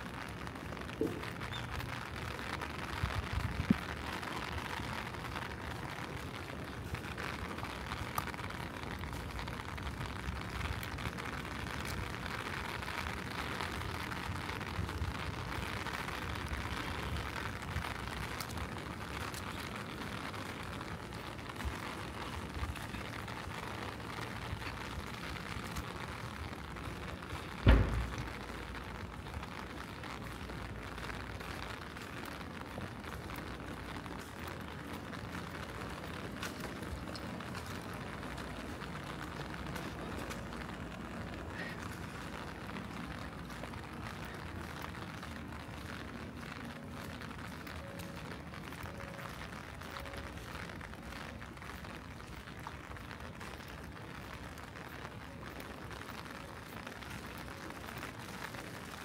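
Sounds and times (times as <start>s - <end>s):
steady rain: 0.0s - 59.0s
loud low thump: 27.6s - 28.3s.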